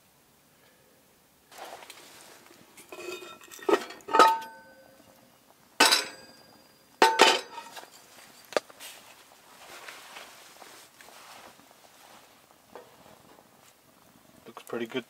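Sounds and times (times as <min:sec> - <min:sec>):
metal pot lid clanking: 0:02.8 - 0:05.0, 0:05.8 - 0:08.0.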